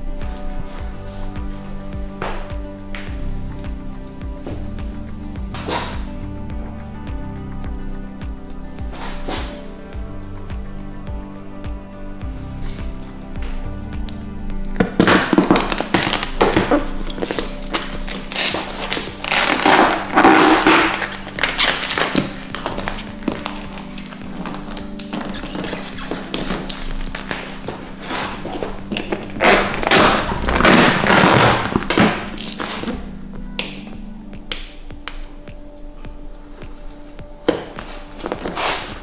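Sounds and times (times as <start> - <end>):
background music: 0.0 - 39.0
plastic film crackling: 14.9 - 33.1.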